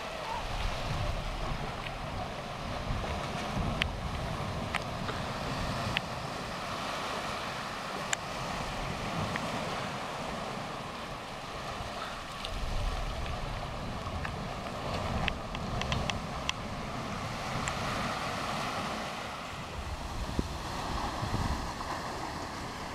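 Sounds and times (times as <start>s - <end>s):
sea surf in a cove: 0.0s - 22.9s
wind buffeting microphone: 0.0s - 22.9s
faint clicks: 14.2s - 16.6s.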